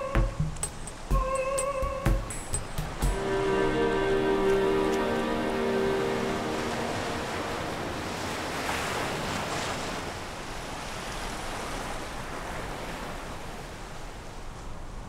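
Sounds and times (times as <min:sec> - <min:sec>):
surf washing onto sandy beach: 0:02.8 - 0:14.3.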